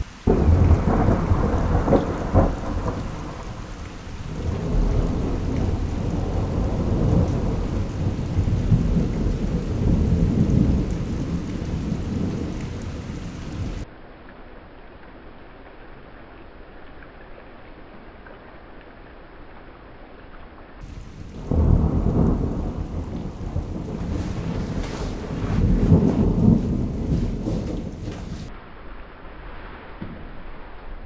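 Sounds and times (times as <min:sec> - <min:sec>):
thunder cracking and rumbling: 0:00.0 - 0:13.9, 0:20.8 - 0:28.5
rain falling: 0:00.0 - 0:31.0.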